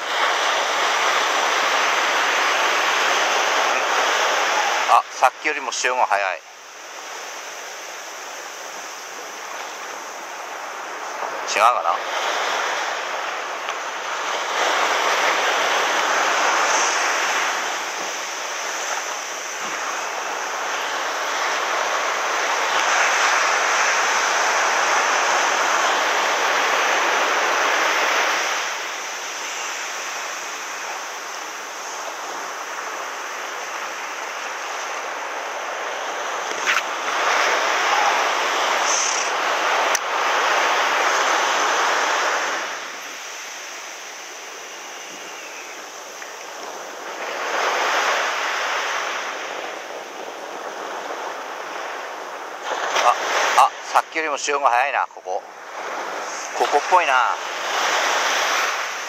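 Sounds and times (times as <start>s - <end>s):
surf breaking on a sandy beach: 0.0s - 59.0s.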